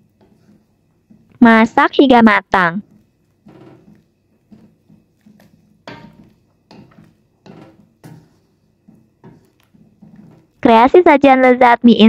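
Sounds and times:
wooden spatula scraping pan: 0.0s - 1.4s, 2.8s - 10.6s.

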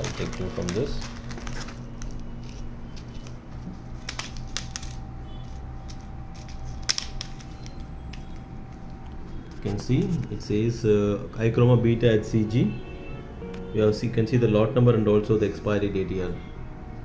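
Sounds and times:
foil pouches crinkling: 0.0s - 10.4s
low steady hum: 0.0s - 17.0s.

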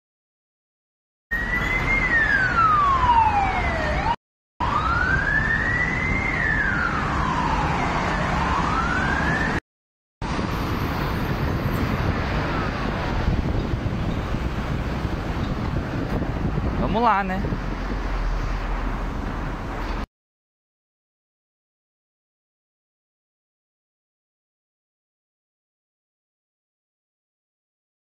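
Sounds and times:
emergency vehicle siren wailing: 1.3s - 9.6s, 10.3s - 18.0s
heavy road traffic: 1.3s - 9.6s, 10.2s - 20.1s.

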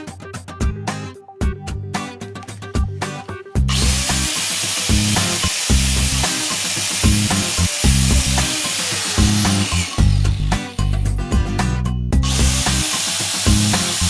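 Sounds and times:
funk music bass beat: 0.0s - 4.3s, 7.1s - 8.6s, 9.2s - 12.9s
angle grinder spinning: 3.7s - 11.2s, 12.2s - 14.0s.

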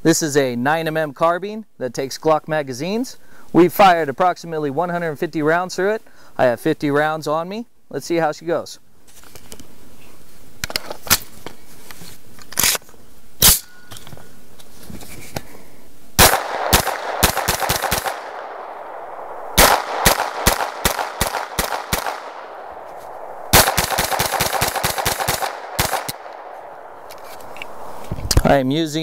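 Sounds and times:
gunshots with echo: 16.2s - 28.4s.

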